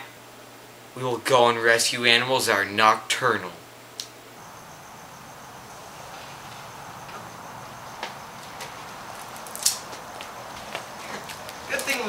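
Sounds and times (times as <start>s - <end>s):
crickets chirping: 4.2s - 12.0s.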